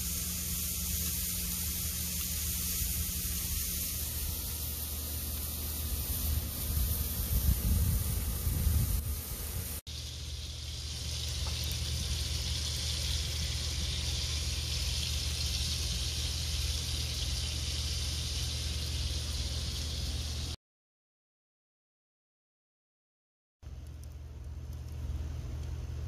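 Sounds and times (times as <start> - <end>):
low steady hum: 0.0 - 20.6, 23.6 - 26.0
meat patties sizzling in fat: 0.0 - 20.6.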